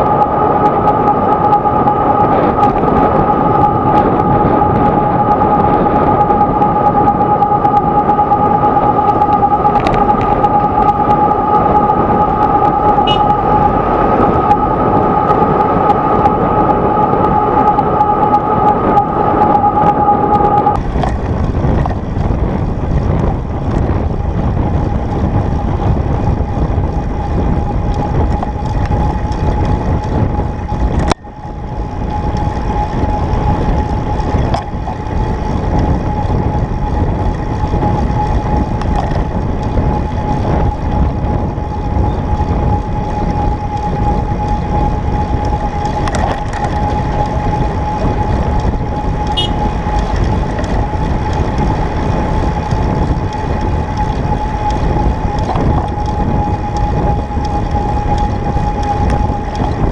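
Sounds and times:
two-note tone: 0.0 - 20.8, 49.2 - 50.1
traffic noise: 0.0 - 59.9
wind buffeting: 0.0 - 59.9
faint single tone: 0.3 - 20.8.

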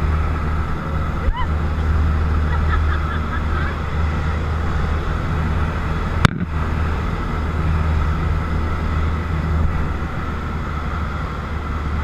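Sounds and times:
aircraft engine droning: 0.0 - 12.0.

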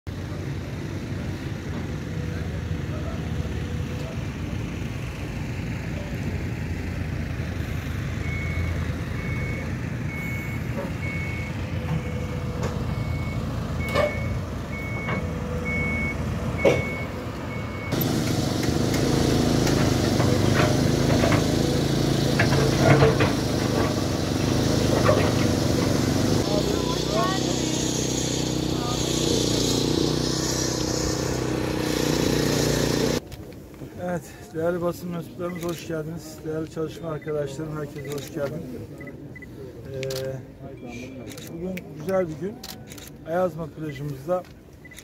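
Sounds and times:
heavy construction machinery running: 0.1 - 33.2
reversing alarm beeping: 8.1 - 18.1.

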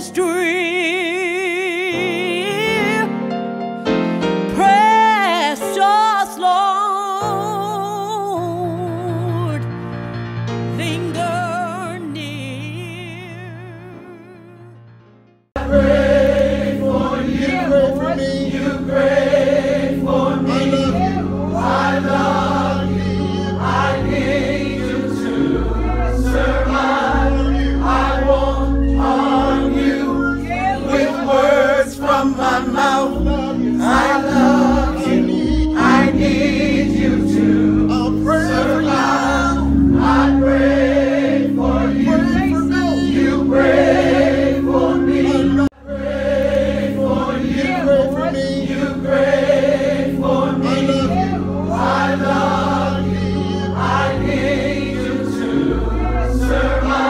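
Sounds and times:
choir singing gospel song: 0.0 - 3.2, 15.6 - 57.0.

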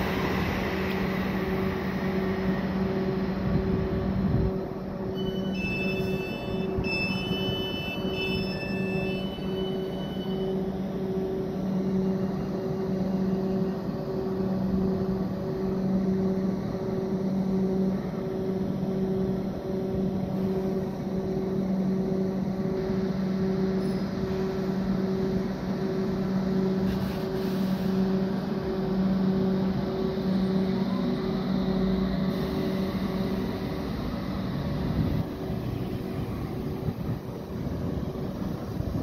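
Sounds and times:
electric train humming: 0.0 - 39.0
machinery hiss: 26.8 - 28.6.

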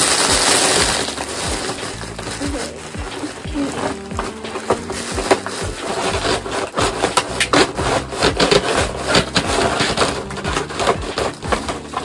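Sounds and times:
bubble wrap rustling and crinkling: 0.0 - 12.0.

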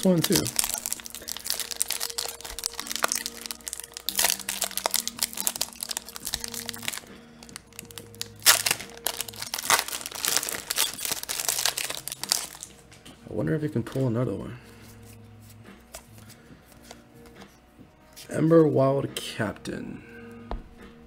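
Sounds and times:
faint background music: 0.0 - 21.0.

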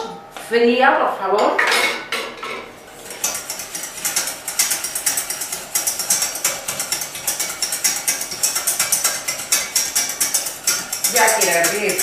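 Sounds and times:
whisk clicking against saucepan: 3.1 - 12.0.

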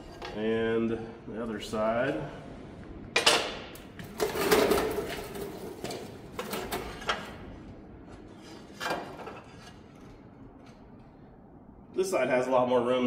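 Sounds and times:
metal scrapes and knocks: 3.2 - 10.9.

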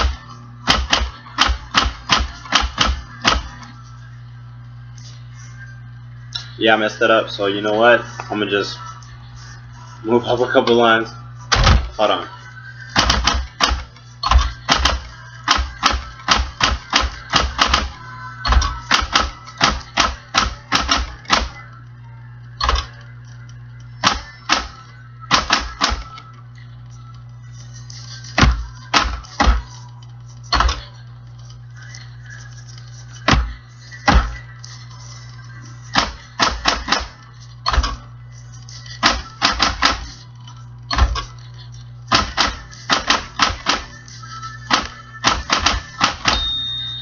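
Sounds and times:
typewriter motor hum: 0.0 - 3.6, 13.0 - 21.8, 38.8 - 40.2, 42.0 - 44.0, 44.7 - 46.6
steady low hum: 0.0 - 47.0.

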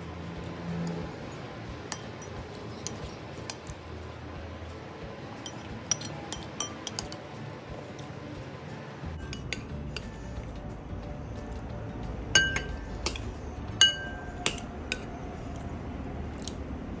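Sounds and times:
metal spoon clinking on bowl: 1.9 - 3.8, 5.4 - 7.2, 9.2 - 10.1, 12.4 - 15.1.

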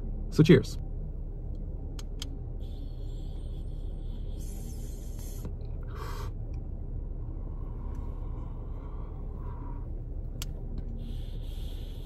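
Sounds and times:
low steady rumble: 0.0 - 12.0
air hissing during inhale: 2.6 - 6.3, 10.9 - 12.0.

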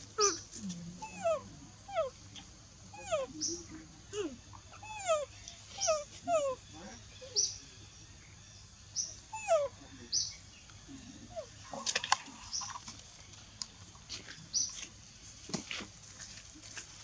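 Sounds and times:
baby monkey squeaking: 0.2 - 2.1, 4.6 - 7.6.

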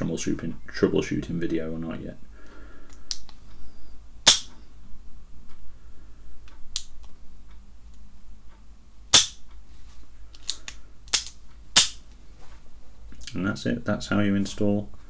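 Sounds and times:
sharp metal clicks: 10.4 - 12.0.

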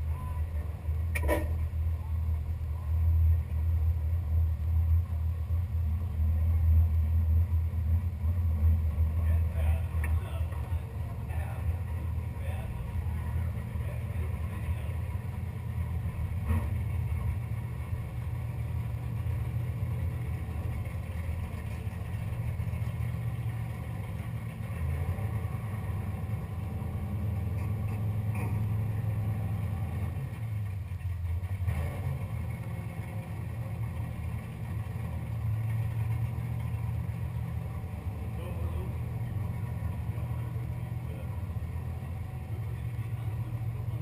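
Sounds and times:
car engine idling: 0.0 - 44.0.

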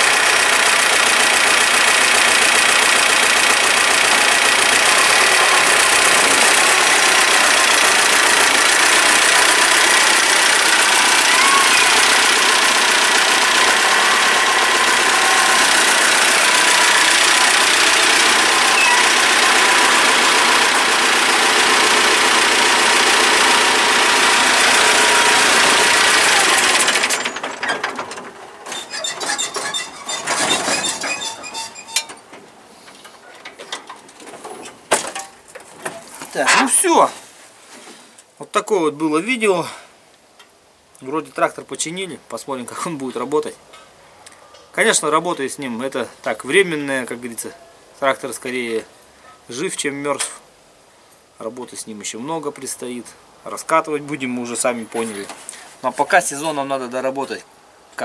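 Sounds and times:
tractor diesel engine running: 0.0 - 36.1.

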